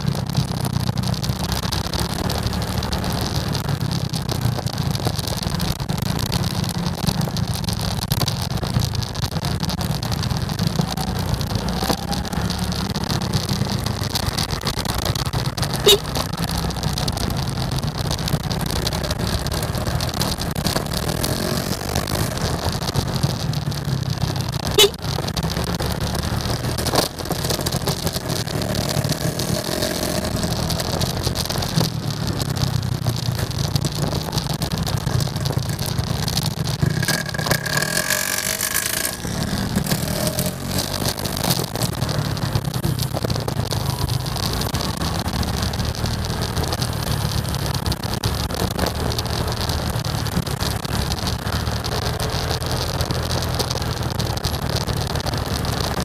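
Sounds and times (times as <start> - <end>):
motorcycle engine running: 0.0 - 56.0
traffic: 0.0 - 56.0
burst of noise with high tone: 9.2 - 16.3, 24.5 - 32.5, 33.3 - 51.8.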